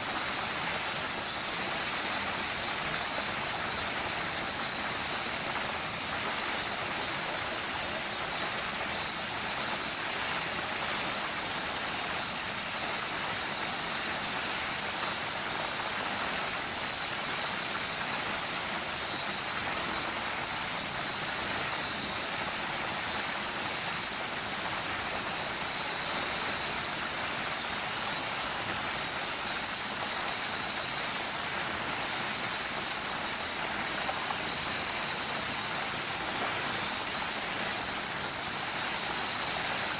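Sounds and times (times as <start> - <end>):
cicada chorus: 0.0 - 39.9
pulsing cicada calls: 0.0 - 39.9.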